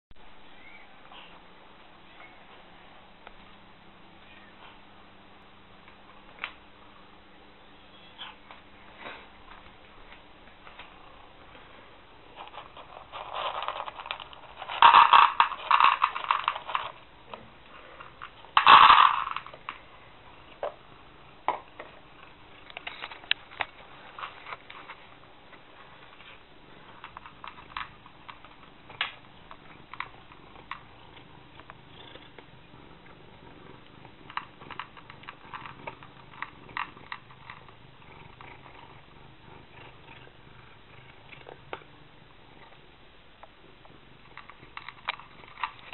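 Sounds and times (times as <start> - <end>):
cat crunching kibble: 12.3 - 17.1, 17.7 - 19.8, 25.8 - 45.9
dry cat food rattling into bowl: 12.3 - 17.1, 18.0 - 19.8, 26.2 - 31.8, 34.1 - 38.9, 44.3 - 45.9.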